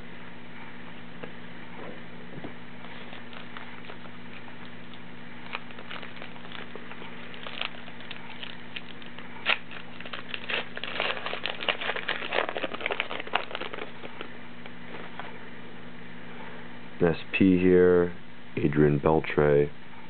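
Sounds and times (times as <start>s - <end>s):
wrapper crinkling: 2.9s - 14.3s
wrapper ripping: 2.9s - 14.3s.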